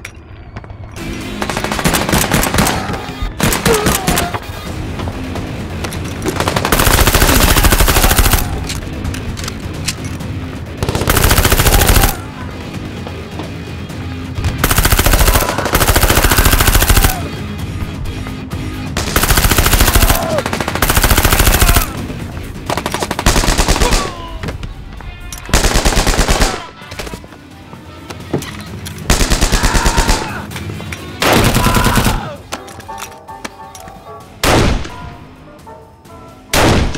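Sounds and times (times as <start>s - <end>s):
background music: 0.0s - 36.9s
automatic gunfire bursts: 6.4s - 8.6s, 10.8s - 12.2s, 14.6s - 17.2s, 19.0s - 21.9s, 22.7s - 24.1s, 25.5s - 26.7s.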